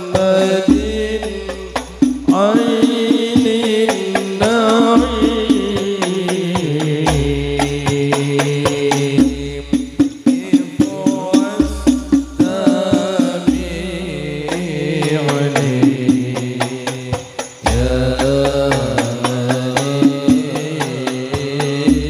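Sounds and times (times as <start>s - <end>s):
deep bass drum notes: 0.0s - 22.0s
frame drums beating: 0.0s - 22.0s
men singing through microphones: 0.0s - 22.0s.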